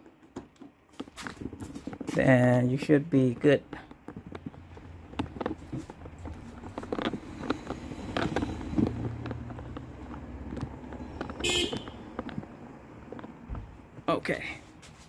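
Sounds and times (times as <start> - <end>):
plastic clicks and knocks: 0.0 - 2.1.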